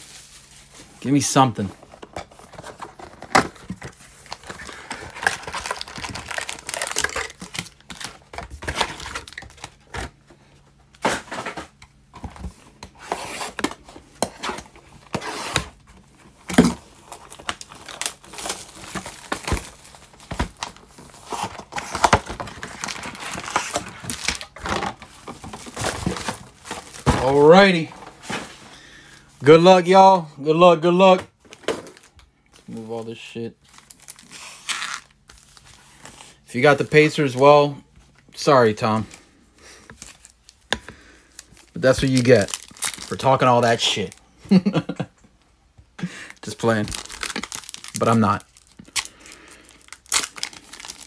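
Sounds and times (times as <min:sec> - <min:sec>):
foil packs crinkling and tearing: 0:00.0 - 0:10.2, 0:12.4 - 0:30.2, 0:30.8 - 0:37.8, 0:38.4 - 0:44.9, 0:46.0 - 0:51.0.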